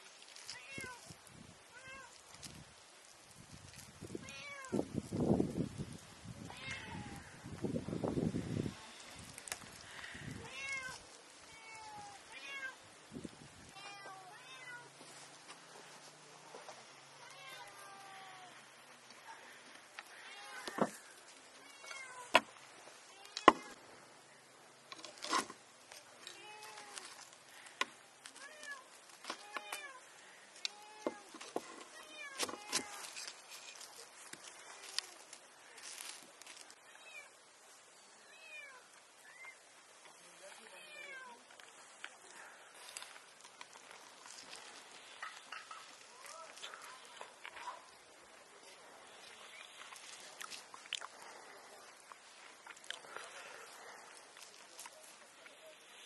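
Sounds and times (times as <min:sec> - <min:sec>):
cat meowing: 0:06.5 - 0:07.3, 0:10.4 - 0:12.8.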